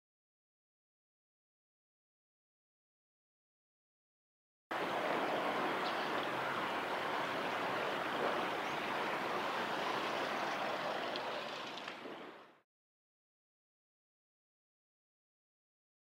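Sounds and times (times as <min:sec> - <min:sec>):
river water rushing: 0:04.7 - 0:12.6.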